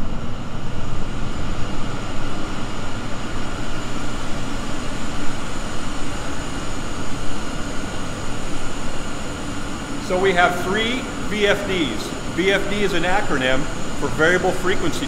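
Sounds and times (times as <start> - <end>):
machinery low rumble: 0.0 - 15.0
steady high tones: 5.7 - 15.0.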